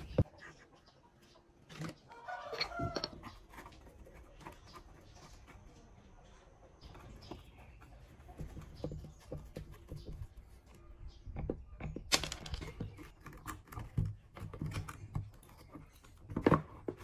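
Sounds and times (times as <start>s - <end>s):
sharp plastic clatter: 12.0s - 15.1s.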